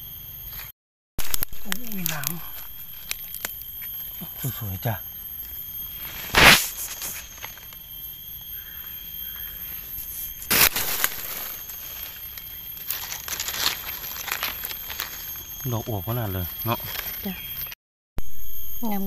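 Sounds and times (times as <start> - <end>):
steady high-pitched tone: 1.2 - 19.0
dry leaves rustling and crackling: 10.4 - 15.7.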